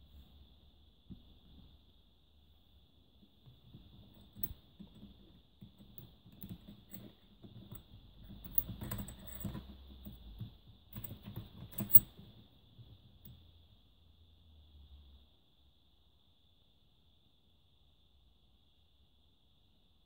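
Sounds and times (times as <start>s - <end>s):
lock cylinder clicks and knocks: 5.6s - 12.2s.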